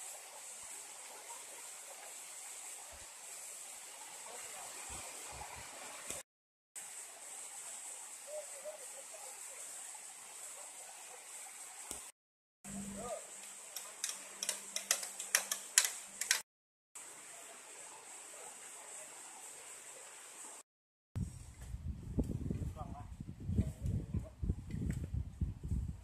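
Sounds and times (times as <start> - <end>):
steady outdoor hiss: 0.0 - 6.2, 6.8 - 12.1, 12.7 - 16.4, 17.0 - 20.6
bamboo poles knocking: 13.8 - 16.4.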